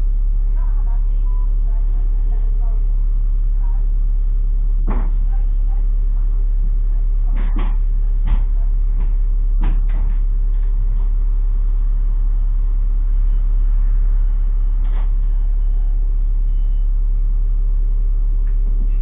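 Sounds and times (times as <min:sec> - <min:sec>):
bus engine drone: 0:00.0 - 0:19.0.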